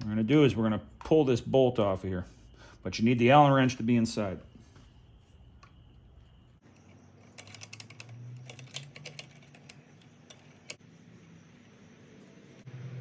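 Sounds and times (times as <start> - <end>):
metal tools clicking and clinking: 6.6 - 10.8.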